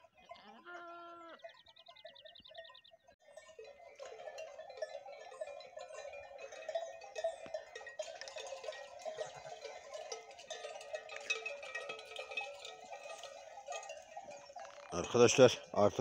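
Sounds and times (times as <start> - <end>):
animal neck bells clanking: 0.0 - 16.0.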